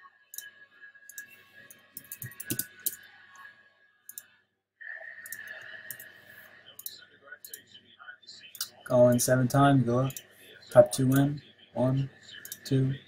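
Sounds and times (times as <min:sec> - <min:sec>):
faint high hum: 0:00.0 - 0:13.0
computer mouse clicks: 0:01.1 - 0:03.0, 0:05.2 - 0:06.1, 0:06.8 - 0:07.6, 0:12.4 - 0:12.7.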